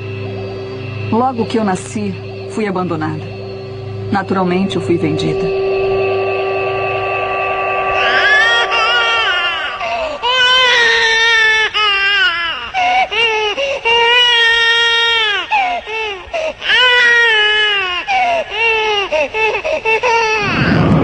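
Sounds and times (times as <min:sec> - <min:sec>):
newborn baby crying: 0:09.8 - 0:20.7.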